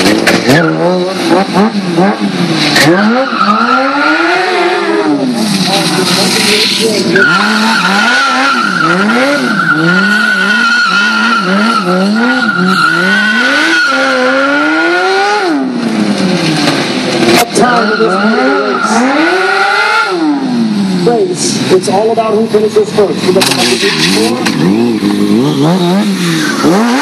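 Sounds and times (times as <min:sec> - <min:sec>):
motorcycle engine revving: 0:00.0 - 0:27.0
tyre squealing: 0:02.7 - 0:14.8, 0:17.3 - 0:20.3.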